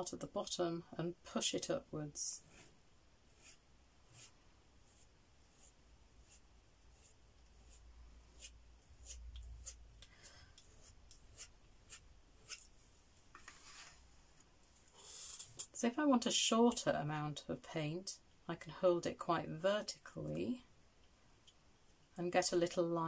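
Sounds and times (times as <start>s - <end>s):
palette knife scraping paint: 3.3s - 9.9s, 10.5s - 12.7s.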